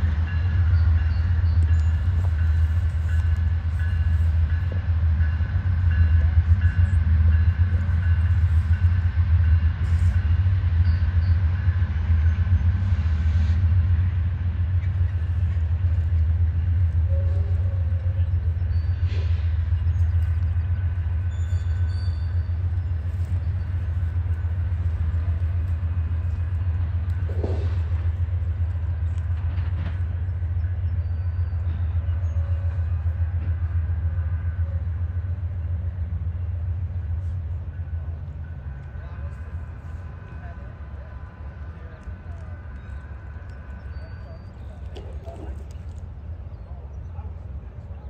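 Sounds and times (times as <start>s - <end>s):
diesel train rumbling: 0.0s - 48.0s.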